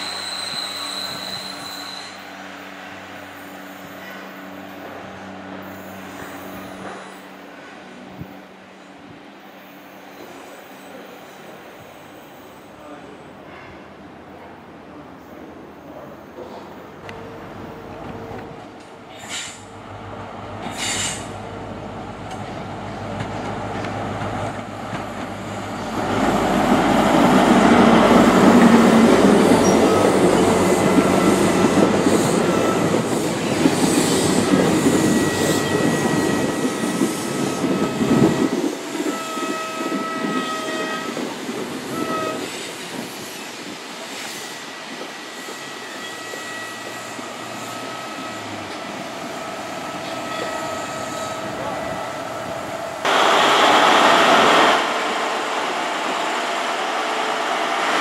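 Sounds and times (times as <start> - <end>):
high squealing of train wheels: 0.0 - 14.4, 15.3 - 19.8, 20.6 - 21.7, 22.3 - 53.1
diesel train engine passing: 10.6 - 39.2, 41.1 - 58.0.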